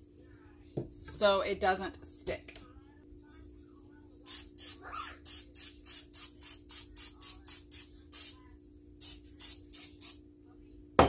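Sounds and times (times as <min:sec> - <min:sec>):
aerosol spray hissing: 0:04.3 - 0:08.4, 0:09.0 - 0:10.2.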